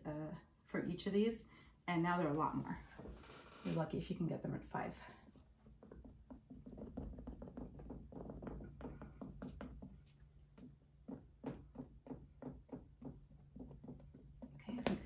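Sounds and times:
painting tool tapping canvas: 5.4 - 15.0.

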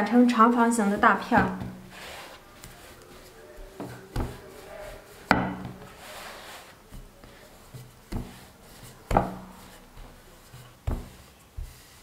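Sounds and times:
rolling pin rubbing on dough: 0.0 - 12.0
rolling pin knocking on board: 1.4 - 1.8, 5.3 - 5.9, 8.1 - 10.1, 10.8 - 11.8.

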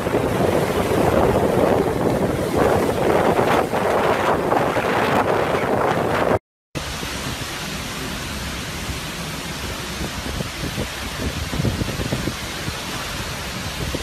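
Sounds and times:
low wind gusts buffeting: 0.0 - 14.0
strong wind and heavy rain: 0.0 - 14.0.

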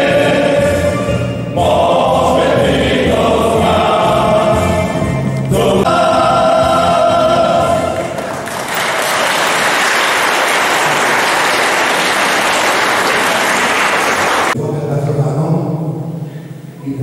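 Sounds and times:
male choir singing: 0.0 - 8.3
audience applause: 8.0 - 14.6.

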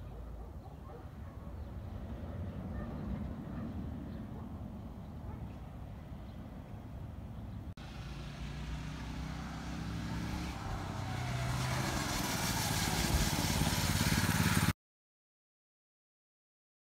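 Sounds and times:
mini bike engine running: 7.8 - 14.7.

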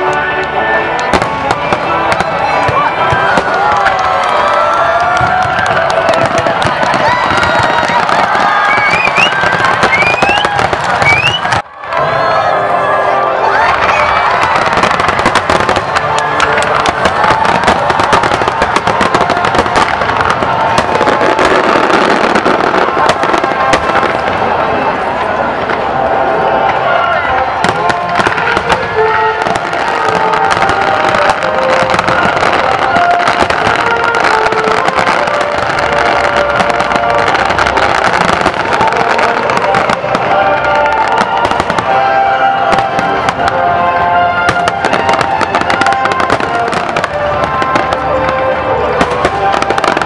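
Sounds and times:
firework crackle: 0.0 - 11.6, 13.8 - 50.0
music playing: 0.0 - 50.0.

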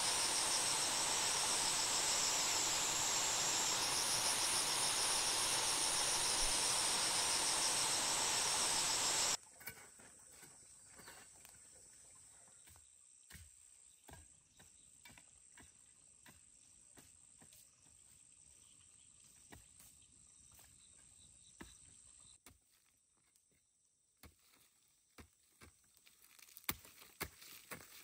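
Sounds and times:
hoe striking dry soil: 0.0 - 9.4.

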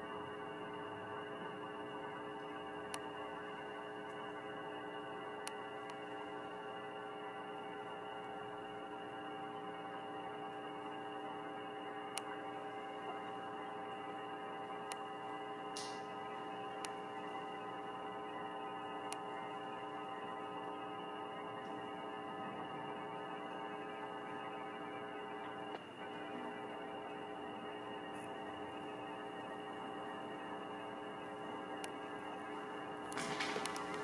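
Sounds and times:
electrical hum: 0.0 - 34.0
faint clicks: 19.0 - 19.3.

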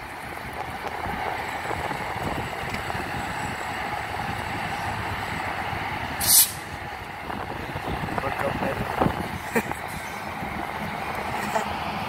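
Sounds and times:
freight train wheels rumbling: 0.0 - 12.0
short loud hiss: 6.2 - 6.6.

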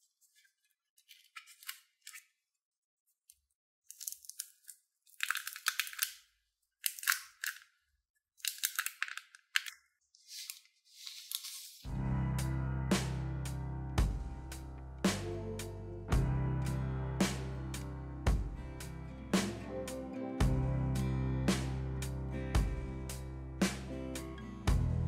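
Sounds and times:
plastic film crinkling: 3.9 - 7.8, 8.4 - 11.9
music with steady bass: 11.9 - 25.0.

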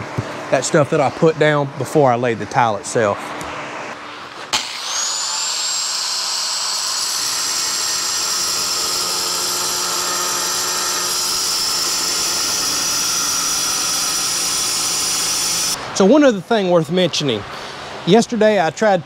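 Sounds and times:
angle grinder cutting tile: 4.5 - 15.8.

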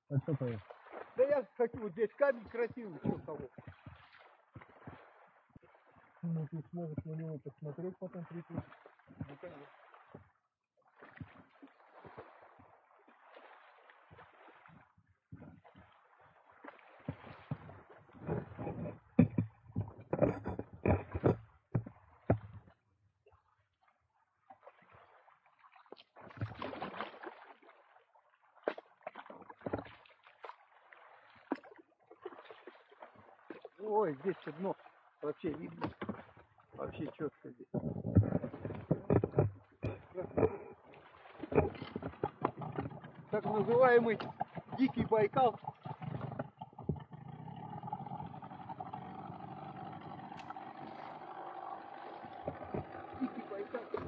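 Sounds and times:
water lapping against boat hull: 0.0 - 54.0
motorboat engine running: 15.2 - 22.9, 35.4 - 54.0
sharp knocks of hull: 17.0 - 22.8, 35.6 - 47.2.

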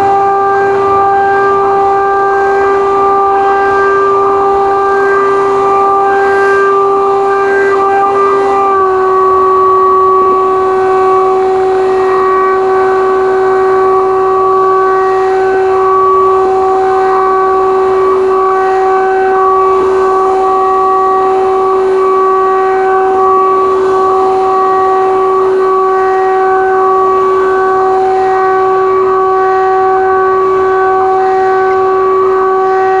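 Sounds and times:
drone propellers whining: 0.0 - 33.0.

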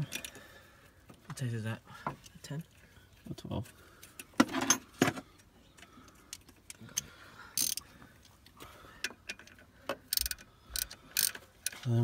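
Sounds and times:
socket ratchet clicking: 7.6 - 7.8, 10.1 - 11.8.

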